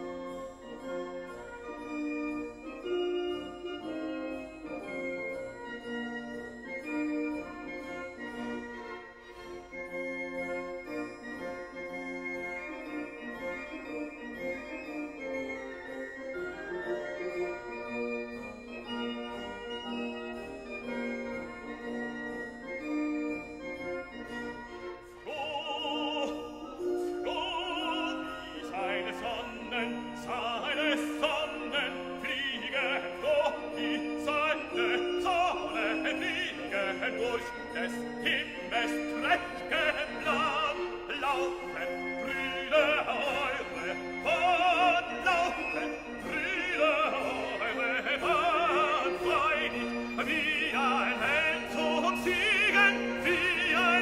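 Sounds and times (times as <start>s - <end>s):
orchestral accompaniment: 0.0s - 54.0s
operatic singing: 25.0s - 54.0s.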